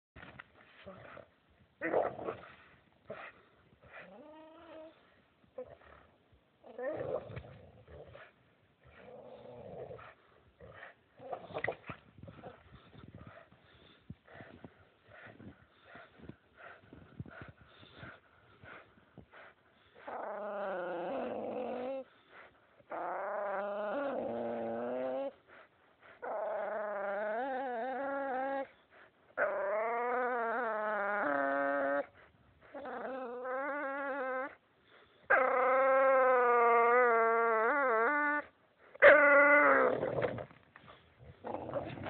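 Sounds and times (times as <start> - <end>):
dog whining: 32.7 - 34.6, 35.3 - 40.5.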